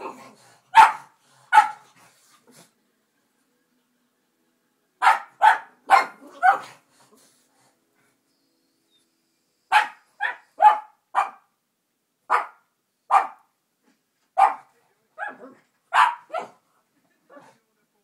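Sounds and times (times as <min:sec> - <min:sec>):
dog barking: 0:00.7 - 0:01.8, 0:05.0 - 0:06.8, 0:09.7 - 0:11.5, 0:12.3 - 0:13.5, 0:14.4 - 0:16.6.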